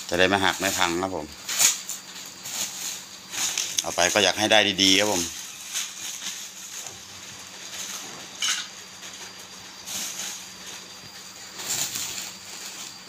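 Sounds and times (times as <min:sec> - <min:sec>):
bubble wrap rustling and crinkling: 0:00.0 - 0:13.0
sharp crackles: 0:00.0 - 0:13.0.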